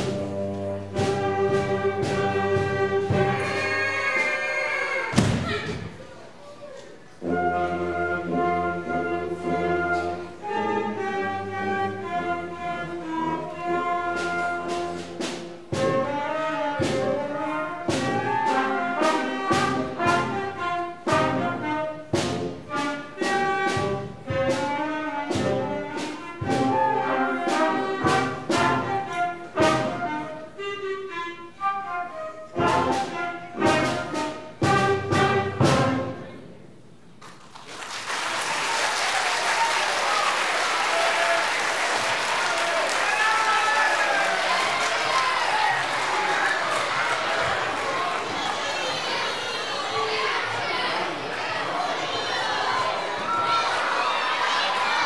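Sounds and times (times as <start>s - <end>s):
concert band playing: 0.0s - 6.0s, 7.2s - 31.9s, 32.5s - 36.4s.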